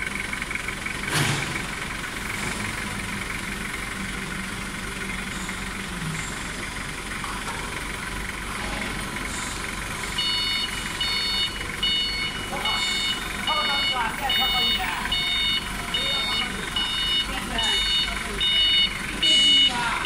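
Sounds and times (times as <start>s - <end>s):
pulsing warning beeper: 10.2s - 20.0s.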